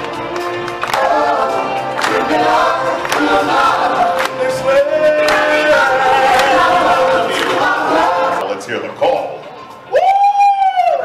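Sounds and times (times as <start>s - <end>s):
band music with percussion: 0.0s - 8.2s
stage singers with choral chorus: 0.7s - 8.5s.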